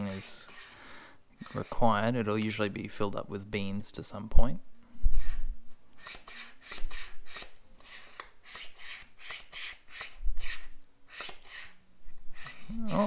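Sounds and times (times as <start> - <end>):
vacuum pump rasping strokes: 6.0 - 13.0.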